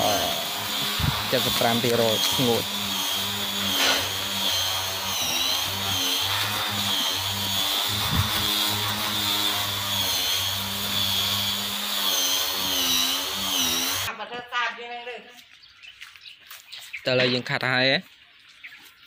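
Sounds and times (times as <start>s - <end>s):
small electric motor whining: 0.0s - 14.1s.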